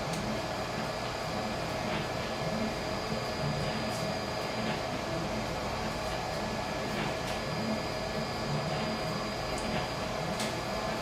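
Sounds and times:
machine motors humming: 0.0s - 11.0s.

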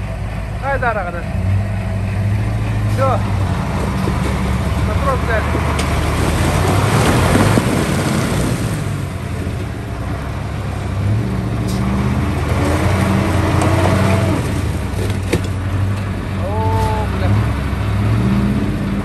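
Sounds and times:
loud rushing noise: 0.0s - 15.0s
vehicle engine revving: 0.0s - 19.0s.

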